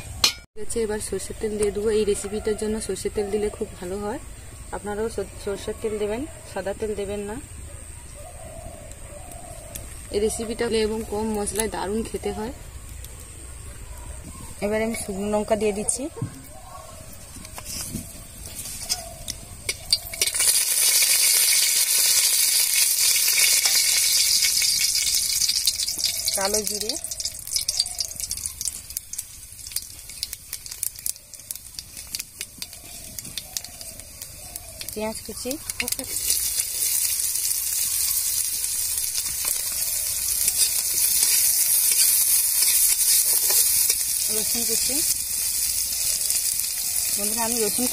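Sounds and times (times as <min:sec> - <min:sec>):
chillies sizzling in hot oil: 0:08.8 - 0:16.0, 0:17.2 - 0:47.9
metal spatula stirring: 0:18.5 - 0:34.0, 0:39.2 - 0:47.9.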